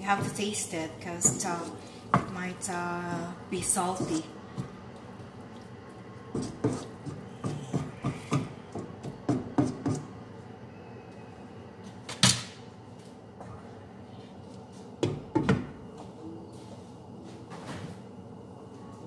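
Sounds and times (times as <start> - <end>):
wooden spoon stirring sauce in a pan: 1.2 - 10.1.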